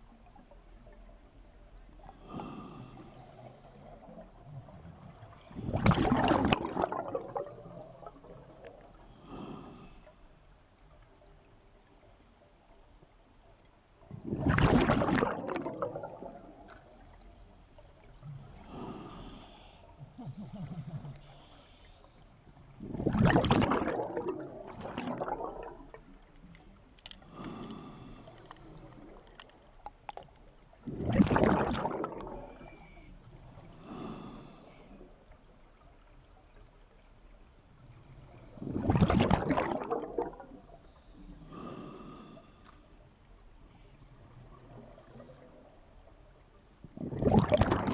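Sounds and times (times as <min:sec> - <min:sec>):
exhaled bubbles rushing: 0:04.0 - 0:08.9, 0:14.1 - 0:17.1, 0:22.7 - 0:26.3, 0:30.8 - 0:32.7, 0:38.6 - 0:40.8, 0:46.8 - 0:47.9
hissing regulator inhalations: 0:21.2 - 0:22.2.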